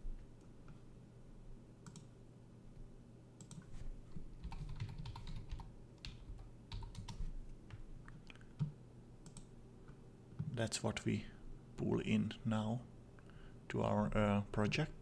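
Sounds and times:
typing on computer keyboard: 0:04.4 - 0:07.8.

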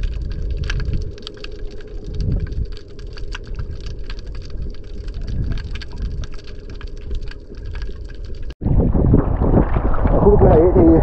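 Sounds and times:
low underwater rumble: 0:00.0 - 0:11.0.

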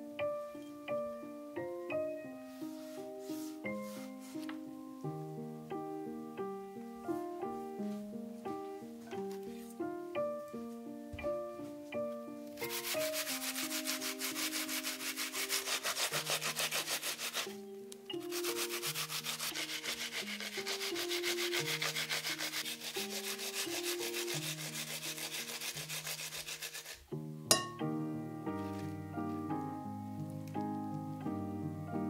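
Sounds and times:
onion scraped on metal grater: 0:12.6 - 0:17.6, 0:18.2 - 0:27.0.

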